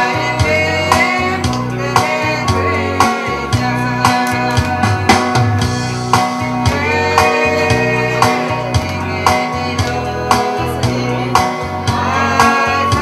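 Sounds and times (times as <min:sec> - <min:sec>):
woman singing into a microphone: 0:00.0 - 0:05.4, 0:06.6 - 0:13.0
guitar: 0:00.0 - 0:13.0
steady drum beat: 0:00.0 - 0:13.0.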